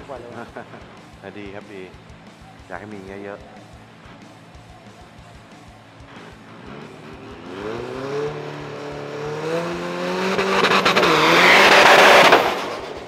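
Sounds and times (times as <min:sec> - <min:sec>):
diesel engine revving: 0:06.0 - 0:13.0.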